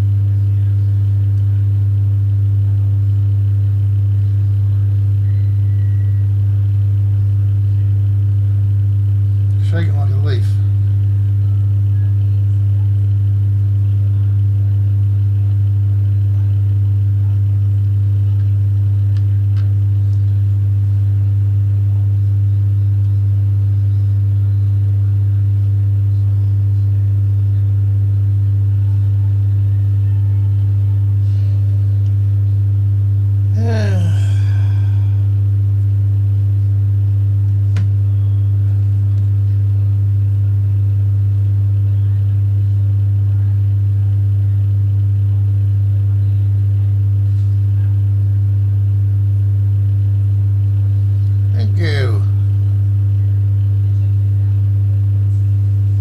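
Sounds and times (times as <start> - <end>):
loud low hum: 0.0 - 56.0.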